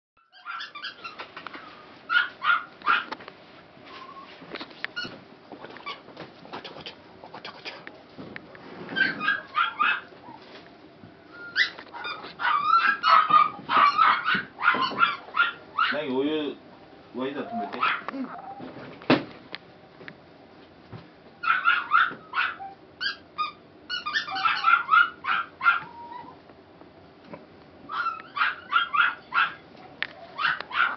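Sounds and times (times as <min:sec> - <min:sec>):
puppies calling: 0:00.2 - 0:03.1, 0:09.0 - 0:10.4, 0:11.3 - 0:16.2, 0:17.2 - 0:18.7, 0:21.4 - 0:26.4, 0:27.8 - 0:30.9.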